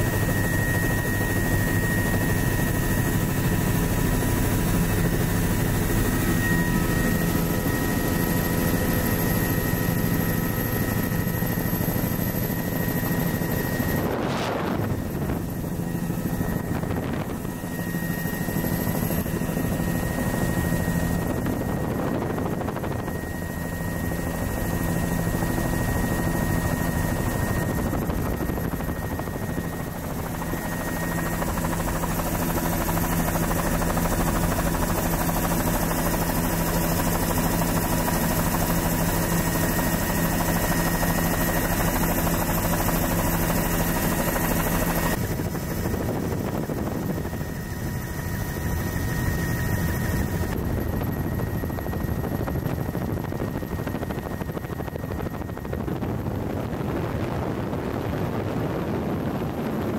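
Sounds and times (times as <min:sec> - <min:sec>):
helicopter rotor and engine: 0:00.0 - 0:59.9
wind rushing: 0:13.1 - 0:18.1.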